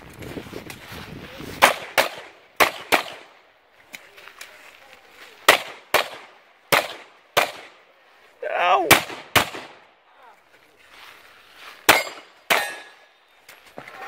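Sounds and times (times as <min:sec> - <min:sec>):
pistol shots in double-taps: 0:01.6 - 0:03.3, 0:05.5 - 0:07.8, 0:08.9 - 0:09.8.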